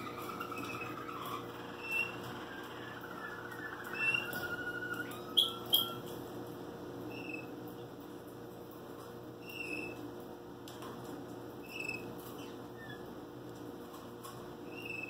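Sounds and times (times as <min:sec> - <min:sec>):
canary singing: 0:00.0 - 0:06.2, 0:07.1 - 0:07.6, 0:09.4 - 0:10.0, 0:11.6 - 0:13.1, 0:14.6 - 0:15.0.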